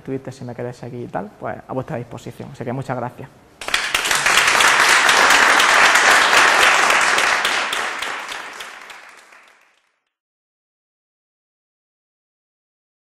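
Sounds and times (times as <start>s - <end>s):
audience applauding: 3.6s - 10.0s.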